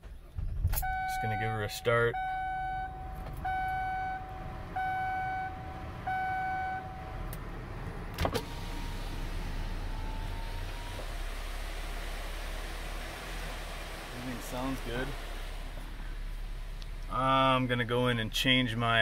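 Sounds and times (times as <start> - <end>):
car engine idling: 0.0 - 19.0
dashboard warning chime: 0.8 - 7.2.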